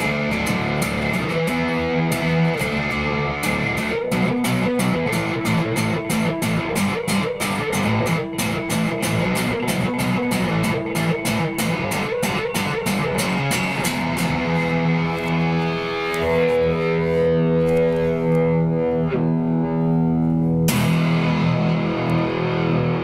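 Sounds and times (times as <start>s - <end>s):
electric guitar held chord: 0.0s - 23.0s
electric guitar picked notes: 0.0s - 23.0s.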